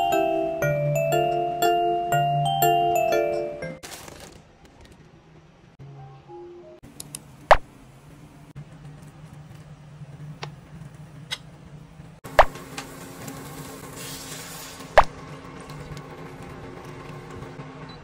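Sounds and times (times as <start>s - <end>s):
water hissing in hot pan: 12.6s - 15.0s.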